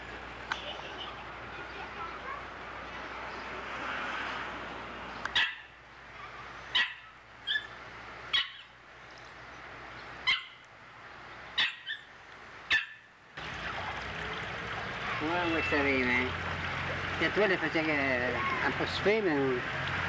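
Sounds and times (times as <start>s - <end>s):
small dog barking: 5.3s - 7.7s, 8.3s - 8.7s, 10.2s - 10.6s, 11.6s - 12.1s, 12.7s - 13.1s.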